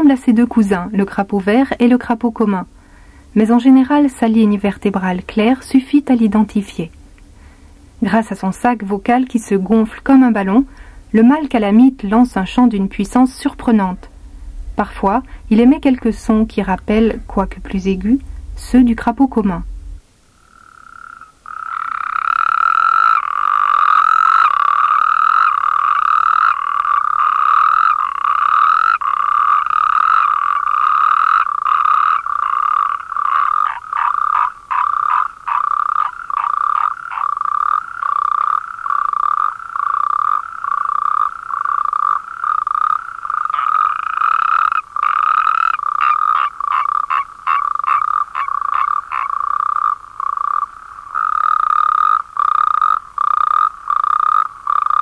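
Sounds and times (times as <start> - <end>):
toads calling in trills: 20.4 - 55.0.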